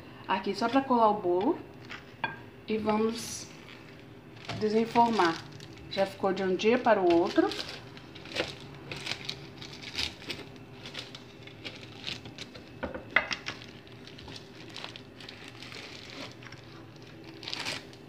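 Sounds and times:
plastic crinkling: 3.5 - 18.0.

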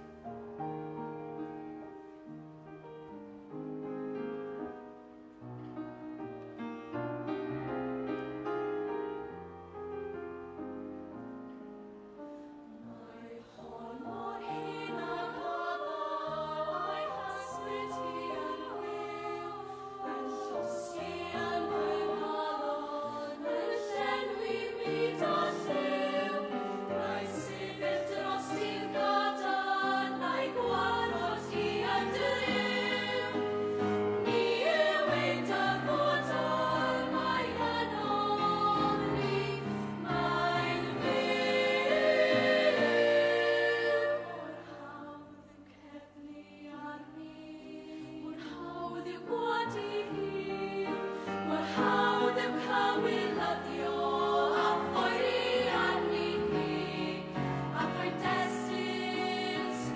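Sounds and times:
girls' choir singing: 12.7 - 59.9.

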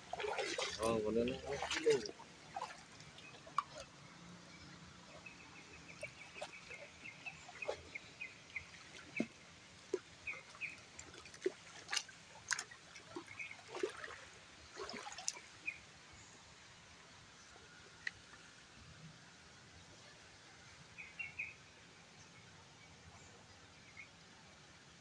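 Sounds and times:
clicks and splashes from wading: 0.0 - 15.8
shallow stream trickling: 0.0 - 25.0
bird chirping: 21.0 - 21.6.

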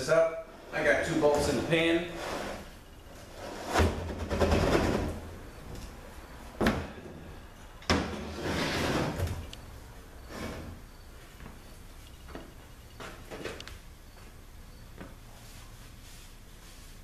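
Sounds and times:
metal case scraping on workbench: 0.6 - 5.2, 8.0 - 9.4, 10.3 - 10.8.

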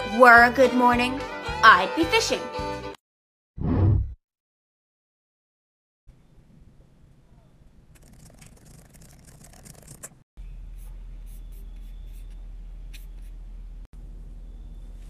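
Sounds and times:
low electrical hum: 10.4 - 15.0.

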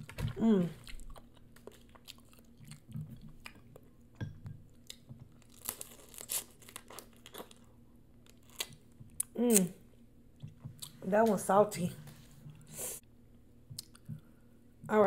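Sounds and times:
wet chewing: 0.1 - 3.6.

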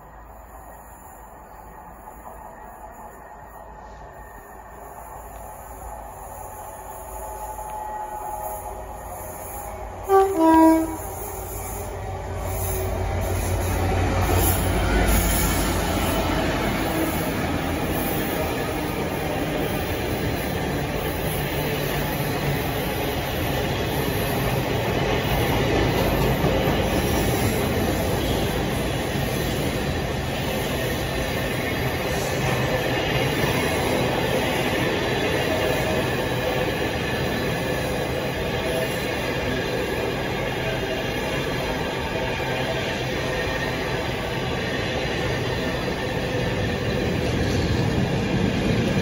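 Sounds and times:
diesel locomotive engine rumble: 0.0 - 49.0
freight train rolling on rails: 0.0 - 49.0.

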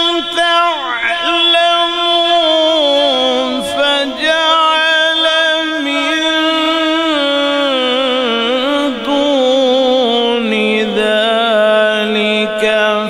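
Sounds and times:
man chanting melodically: 0.0 - 13.0.

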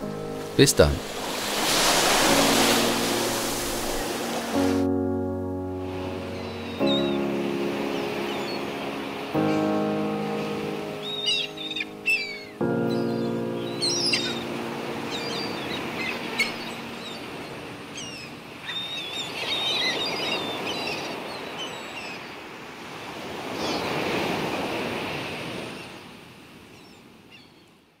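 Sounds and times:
held music chord: 0.0 - 18.4
sea waves washing on shore: 0.0 - 27.2
small birds chirping: 6.3 - 9.7, 10.7 - 14.5, 15.1 - 22.3.

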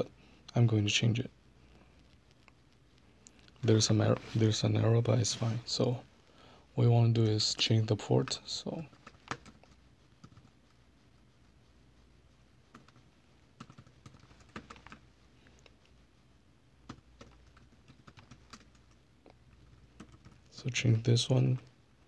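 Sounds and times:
laptop keyboard typing: 8.7 - 10.5, 12.7 - 15.0, 16.8 - 20.5.

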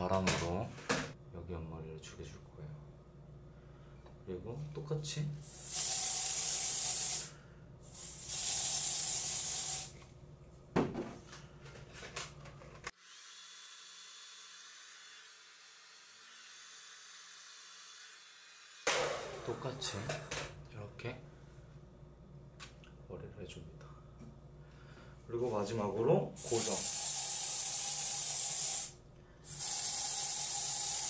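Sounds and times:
aerosol can spraying: 5.4 - 7.3, 7.9 - 10.0, 26.4 - 31.0.

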